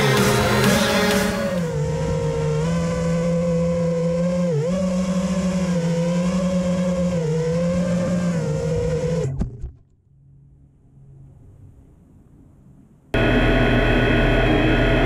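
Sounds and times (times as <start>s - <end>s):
quadcopter motors whining: 0.0s - 9.5s.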